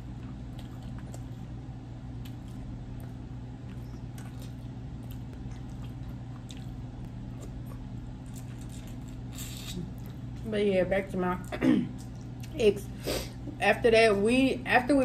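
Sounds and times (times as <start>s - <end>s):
chewing and biting: 0.0s - 10.4s
steady low hum: 0.0s - 15.0s.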